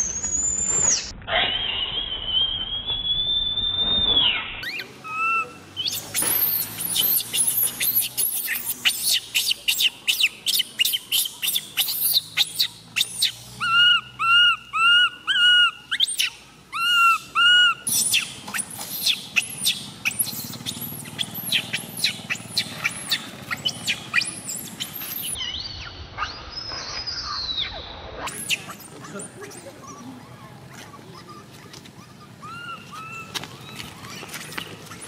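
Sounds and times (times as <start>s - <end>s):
infant monkey crying: 4.6s - 25.4s, 28.3s - 34.3s.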